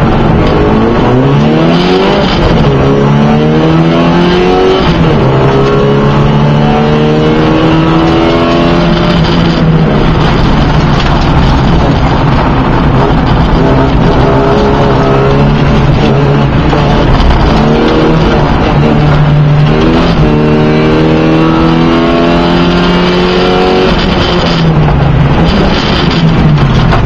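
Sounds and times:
race car engine accelerating: 0:00.0 - 0:26.9.

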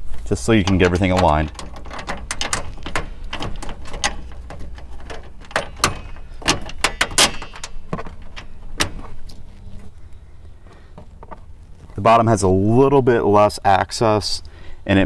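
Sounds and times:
metallic clicks and knocks: 0:00.4 - 0:10.0, 0:10.6 - 0:11.6.

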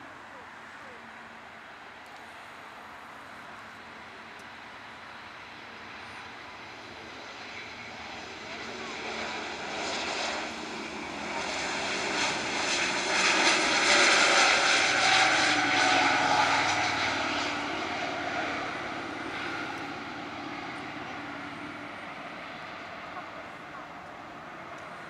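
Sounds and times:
jet engine whine: 0:00.0 - 0:25.0
jet airliner taking off: 0:04.5 - 0:25.0.

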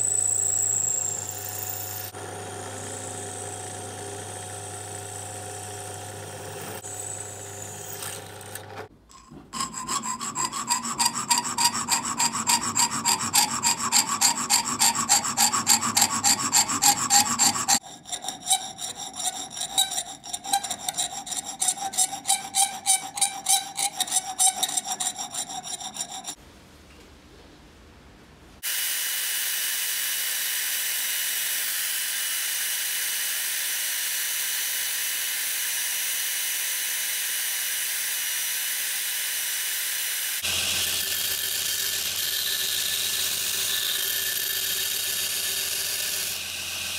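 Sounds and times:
band saw cutting metal: 0:00.0 - 0:26.4, 0:28.7 - 0:46.9
drill press running: 0:00.1 - 0:17.8
hand file scraping metal: 0:09.1 - 0:26.4, 0:40.4 - 0:46.9.

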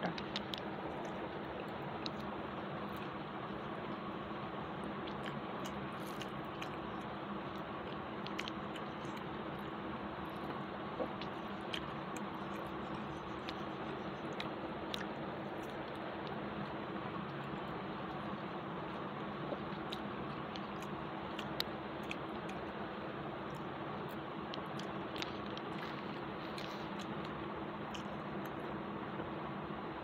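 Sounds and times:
person chewing food: 0:00.0 - 0:28.6
steady background hiss: 0:00.0 - 0:30.0
wet mouth clicks: 0:04.9 - 0:16.4, 0:23.5 - 0:28.6.

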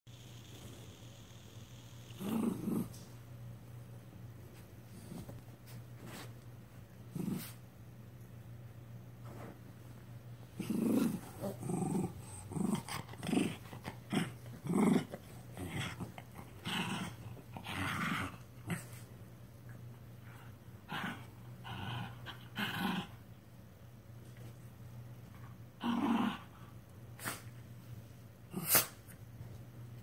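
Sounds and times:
dogs play growling: 0:02.1 - 0:03.2, 0:04.5 - 0:06.3, 0:06.9 - 0:07.6, 0:10.5 - 0:23.4, 0:25.2 - 0:27.5.

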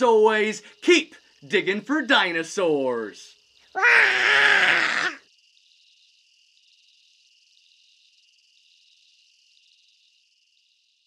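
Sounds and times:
faint high-pitched fluttering hum: 0:00.0 - 0:11.0.

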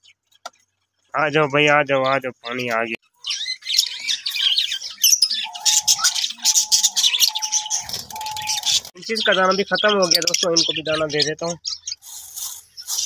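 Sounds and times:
birds chirping and chattering: 0:00.0 - 0:13.0.

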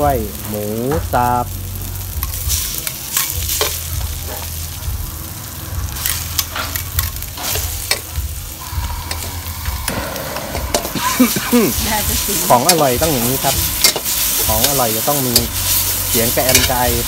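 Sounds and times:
meat sizzling in wok: 0:00.0 - 0:17.0
metal spatula scraping wok: 0:05.9 - 0:17.0.

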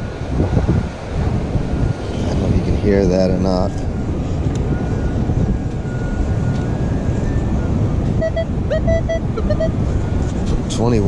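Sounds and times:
wind buffeting microphone: 0:00.0 - 0:11.0
metal detector beeps: 0:04.7 - 0:10.1.

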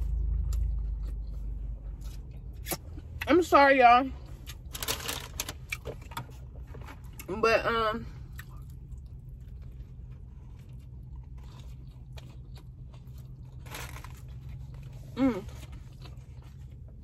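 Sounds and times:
chewing with soft crunching: 0:00.0 - 0:03.2, 0:08.1 - 0:17.0
steady low hum: 0:00.0 - 0:17.0.

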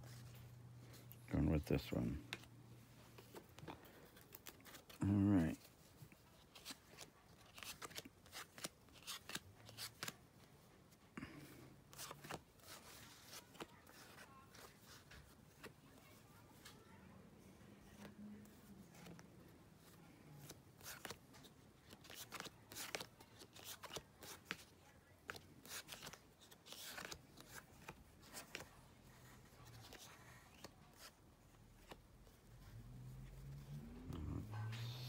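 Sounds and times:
cards rustling and clicking: 0:00.1 - 0:10.2, 0:11.9 - 0:16.2, 0:19.8 - 0:28.8, 0:29.4 - 0:32.5.

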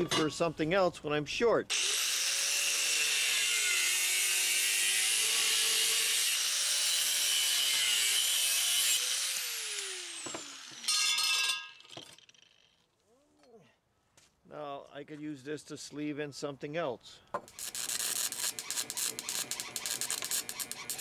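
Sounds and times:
grinder spinning down whine: 0:01.7 - 0:10.9, 0:17.6 - 0:21.0
angle grinder cutting metal pipe: 0:01.7 - 0:12.7, 0:17.5 - 0:21.0.

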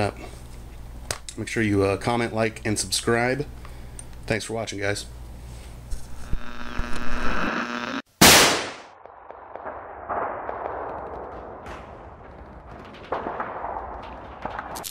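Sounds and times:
buzzing tone: 0:05.9 - 0:08.1
gunshot-like bang: 0:08.2 - 0:08.9.

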